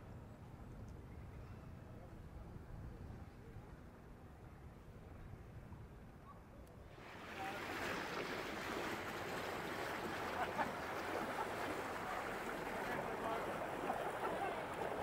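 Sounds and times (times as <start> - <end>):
wind: 0.0 - 15.0
rushing river water: 6.9 - 15.0.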